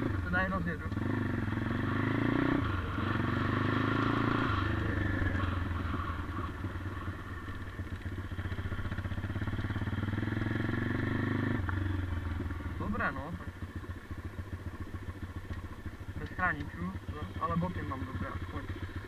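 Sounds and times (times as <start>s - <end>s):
dirt bike engine revving: 0.0s - 19.0s.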